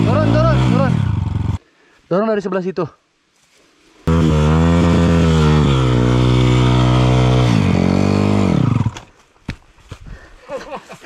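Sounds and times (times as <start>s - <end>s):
dirt bike engine revving: 0.0s - 1.6s, 4.1s - 9.1s.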